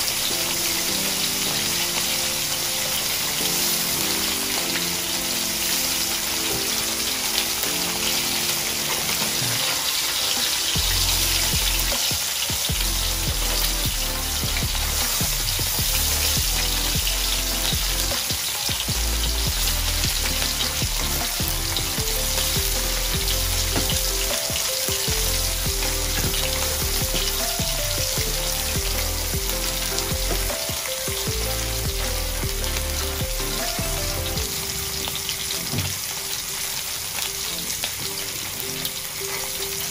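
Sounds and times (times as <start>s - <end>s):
fish sizzling in hot oil: 0.0s - 39.9s
background music with bass: 7.6s - 36.0s.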